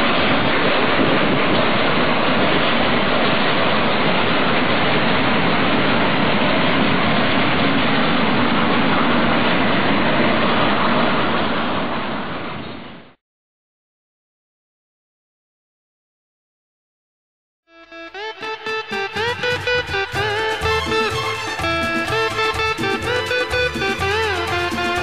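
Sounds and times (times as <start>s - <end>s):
steam locomotive rushing noise: 0.0s - 12.8s, 18.9s - 25.0s.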